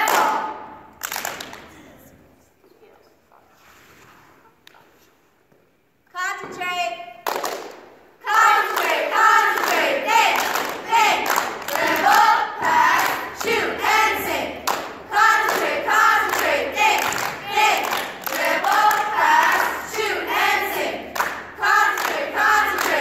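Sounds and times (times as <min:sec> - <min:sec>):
girls chanting in unison: 0:00.0 - 0:00.9, 0:08.2 - 0:23.0
hand claps: 0:00.0 - 0:01.8, 0:07.2 - 0:07.9, 0:08.7 - 0:13.6, 0:14.6 - 0:20.1, 0:20.8 - 0:23.0.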